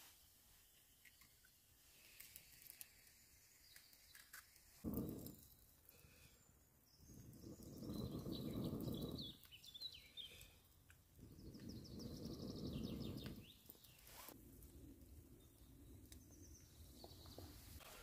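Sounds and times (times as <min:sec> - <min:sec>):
person blowing on embers: 0:04.8 - 0:14.9
birds chirping: 0:06.0 - 0:14.3.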